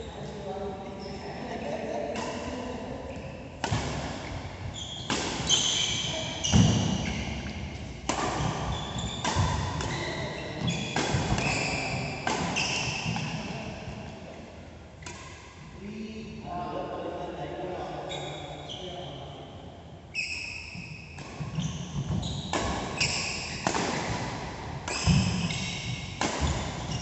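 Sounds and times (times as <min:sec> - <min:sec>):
racket hitting shuttlecock: 0:03.6 - 0:13.6, 0:21.1 - 0:27.0
shoes squeaking on court: 0:04.2 - 0:13.4, 0:20.2 - 0:24.0, 0:24.9 - 0:27.0.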